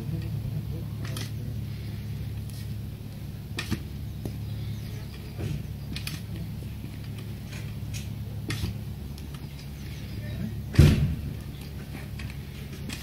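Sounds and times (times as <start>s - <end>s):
hand tiller clicking and scraping in soil: 0.0s - 2.7s, 3.6s - 3.9s, 4.7s - 10.2s, 11.4s - 13.0s
low hum: 0.0s - 13.0s.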